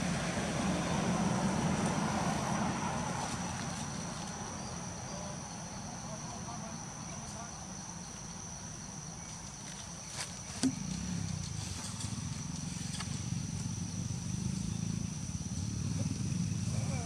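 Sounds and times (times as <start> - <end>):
high-pitched insect drone: 2.0 - 17.0.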